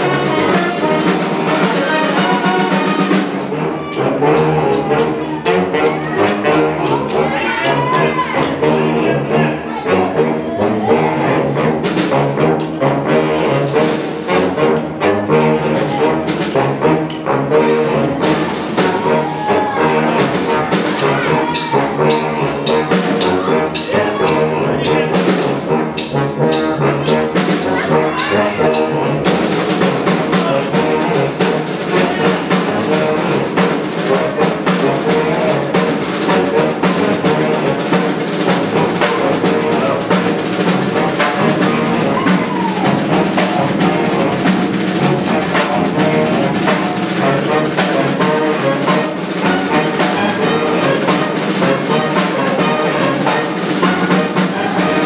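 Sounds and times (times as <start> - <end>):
brass band playing upbeat tune: 0.0 - 55.0.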